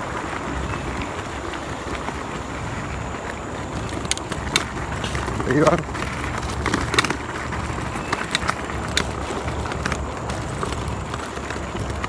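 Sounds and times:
scooter rumbling on gravel: 0:00.0 - 0:12.0
stones clicking and rattling: 0:03.4 - 0:12.0.

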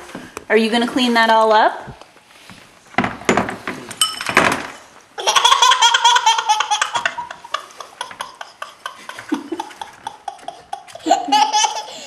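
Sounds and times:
toddler laughing: 0:05.2 - 0:12.0.

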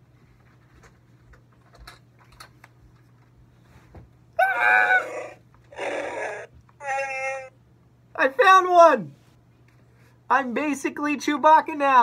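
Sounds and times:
warbling creature roar: 0:04.4 - 0:07.6.

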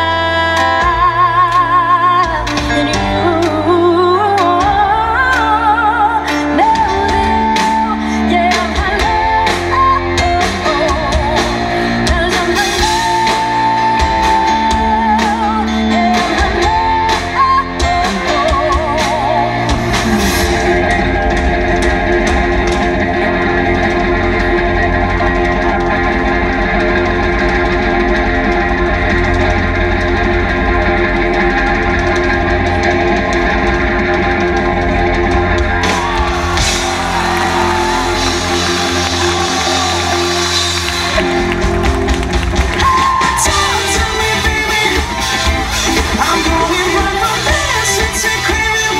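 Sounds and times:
woman singing: 0:00.0 - 0:21.2, 0:42.8 - 0:48.9
electric guitars: 0:00.0 - 0:48.9
pop-rock band playing: 0:00.0 - 0:48.9.

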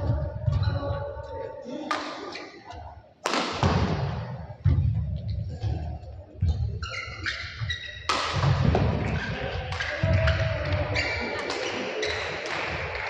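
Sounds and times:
racket striking shuttlecock: 0:03.2 - 0:03.9, 0:08.1 - 0:08.9
shoe squeaks on court floor: 0:06.8 - 0:08.2, 0:11.0 - 0:12.4.

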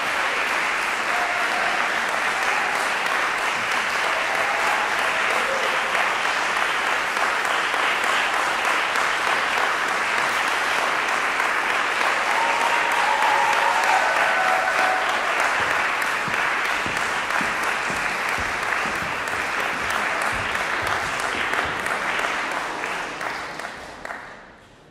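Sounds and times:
audience applauding: 0:00.0 - 0:24.5.

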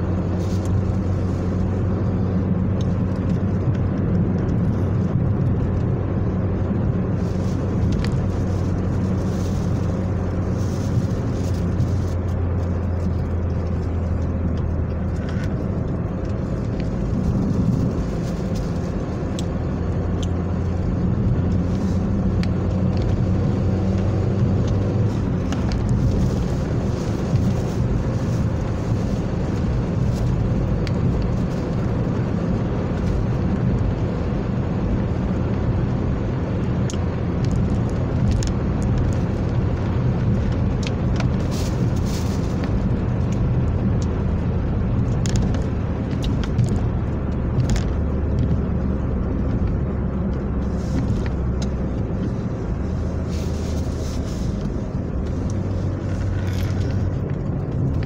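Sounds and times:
car engine and tyre noise: 0:00.0 - 0:58.0
light ticks: 0:36.8 - 0:41.3.

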